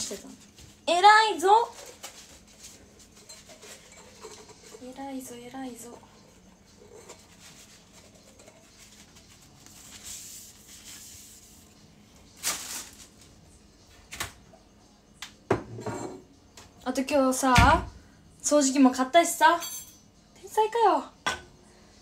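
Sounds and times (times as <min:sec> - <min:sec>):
dishes being handled: 0:01.7 - 0:05.1, 0:05.8 - 0:09.2, 0:15.5 - 0:16.2
dishes clattering: 0:01.8 - 0:05.0, 0:05.8 - 0:08.9, 0:15.5 - 0:16.4, 0:21.2 - 0:21.6.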